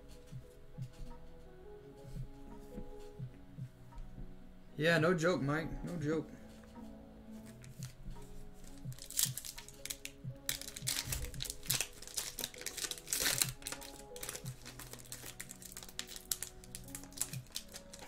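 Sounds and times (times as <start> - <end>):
foil wrapper crinkling and tearing: 8.6 - 18.0.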